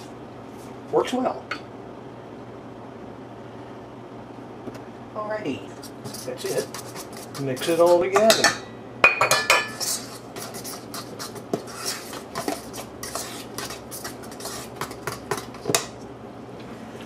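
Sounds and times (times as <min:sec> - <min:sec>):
fork scraping batter in bowl: 0:05.8 - 0:08.4, 0:09.7 - 0:15.9
fork clinking on metal bowl: 0:06.7 - 0:10.0.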